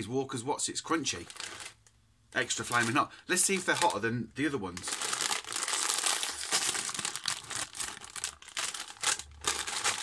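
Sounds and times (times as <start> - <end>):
foil crisp packet crinkling: 1.1 - 1.8, 2.4 - 4.0, 4.7 - 10.0.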